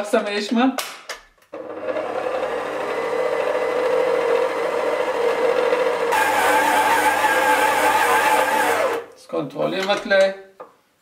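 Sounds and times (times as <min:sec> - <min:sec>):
stand mixer motor running: 0:01.6 - 0:09.0.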